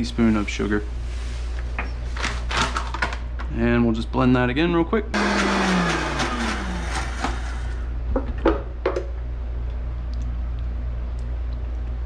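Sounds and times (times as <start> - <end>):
blender whining: 5.2 - 7.9.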